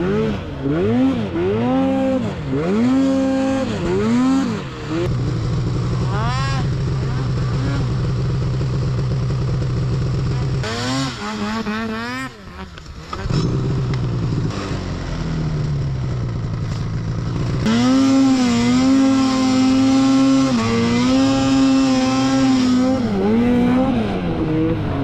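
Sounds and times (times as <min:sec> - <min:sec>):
snowmobile engine revving: 0:00.0 - 0:25.0.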